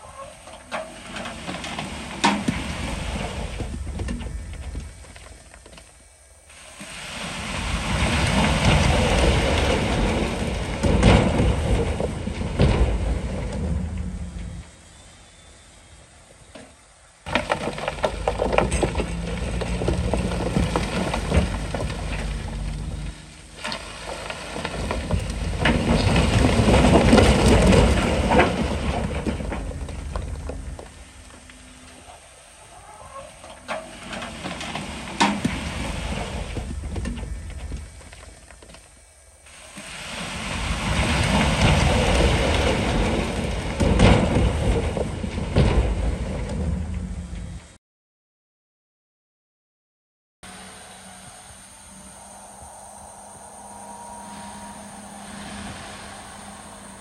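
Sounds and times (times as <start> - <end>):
rumbling rushing rock noise: 1.0 - 5.8, 6.5 - 14.7, 17.3 - 32.2, 33.6 - 38.6, 39.5 - 47.8, 51.5 - 57.0
diesel engine hum: 17.3 - 32.6, 50.4 - 57.0.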